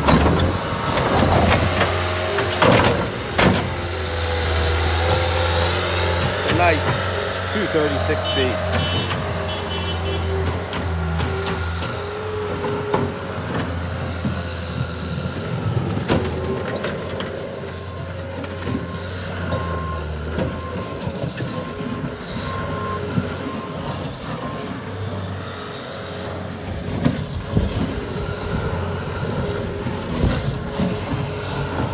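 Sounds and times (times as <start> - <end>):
diesel engine running: 0.0 - 31.9
backup alarm beeping: 7.6 - 10.4.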